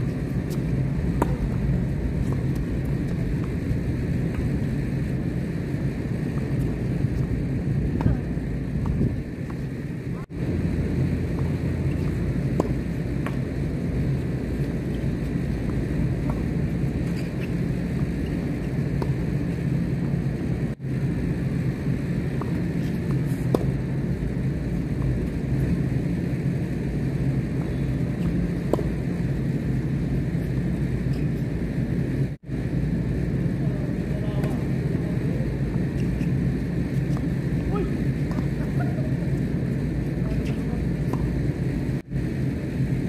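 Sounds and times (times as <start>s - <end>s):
tennis balls struck by racquets: 0.0s - 5.3s, 10.8s - 20.4s, 22.2s - 24.0s, 34.3s - 41.6s
steady low rumble: 0.0s - 43.0s.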